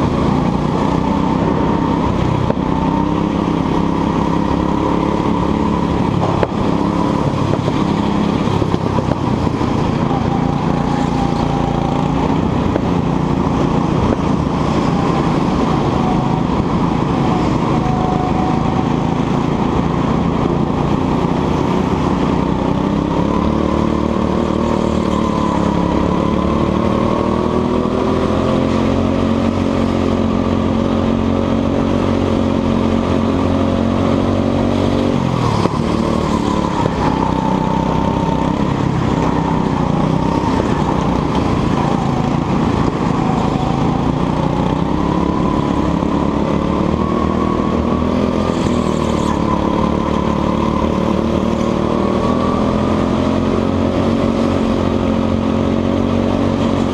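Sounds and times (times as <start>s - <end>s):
go-kart engine revving: 0.0s - 56.9s.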